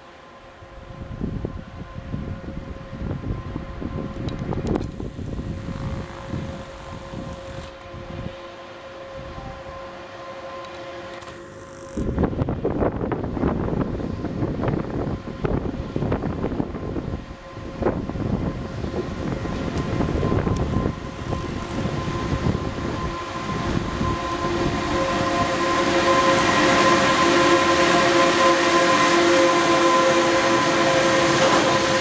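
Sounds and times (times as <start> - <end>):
freight train passing: 0.0 - 32.0
high-pitched brake squeal: 19.8 - 32.0.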